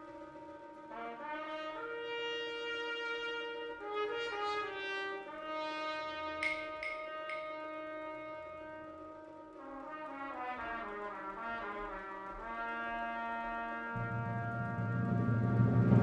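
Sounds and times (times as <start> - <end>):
brass band playing softly: 0.0 - 16.0
loud low note: 14.0 - 16.0.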